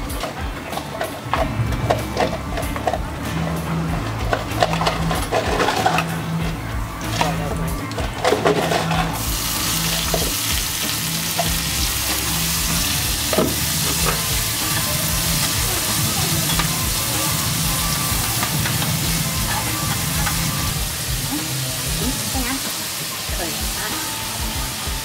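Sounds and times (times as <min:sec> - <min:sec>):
food sizzling in hot oil: 0:09.2 - 0:25.0.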